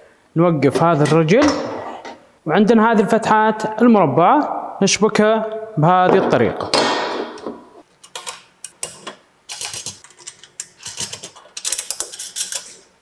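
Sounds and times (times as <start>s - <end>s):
metal parts clinking and rattling: 8.0s - 12.9s.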